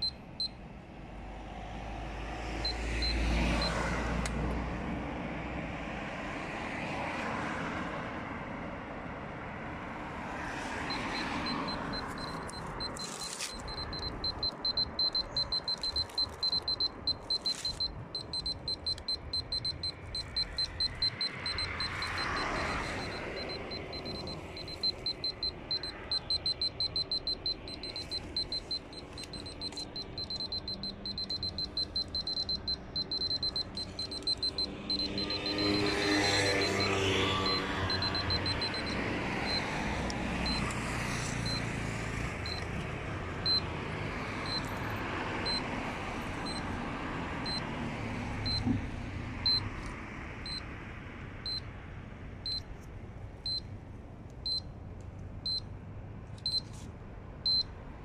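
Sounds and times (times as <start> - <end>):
high-pitched meter beeps: 0.0 - 0.6, 2.6 - 3.8, 10.9 - 39.7, 40.4 - 40.7, 41.4 - 41.8, 42.4 - 42.7, 43.4 - 43.6, 44.4 - 45.7, 46.4 - 46.6, 47.4 - 47.6, 48.4 - 48.8, 49.4 - 49.7, 50.4 - 50.6, 51.4 - 51.6, 52.5 - 52.7, 53.5 - 53.7, 54.4 - 54.7, 56.4 - 56.7, 57.5 - 57.7
passing traffic: 0.0 - 58.0.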